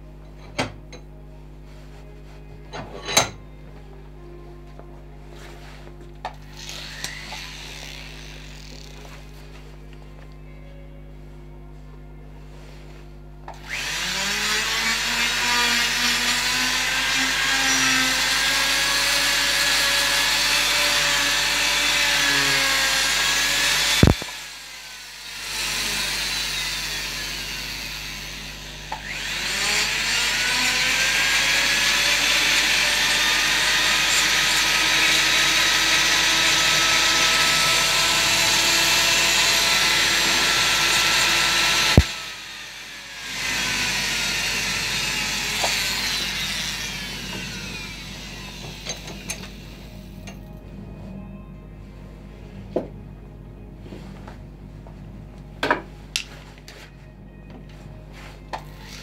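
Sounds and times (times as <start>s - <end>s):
rotary tool whining and grinding wood: 6.3s - 9.7s, 13.5s - 50.4s, 58.5s - 59.0s.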